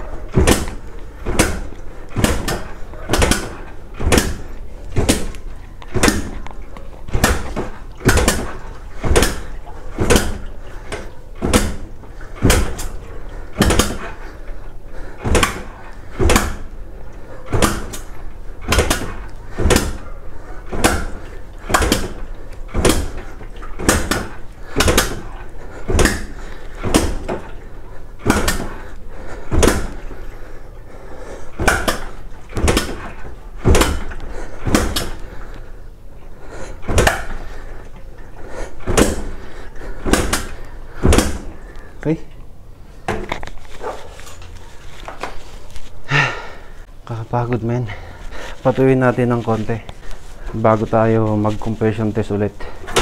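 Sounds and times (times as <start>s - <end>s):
motorcycle kick starter pumping: 0.1s - 35.7s, 36.6s - 42.4s.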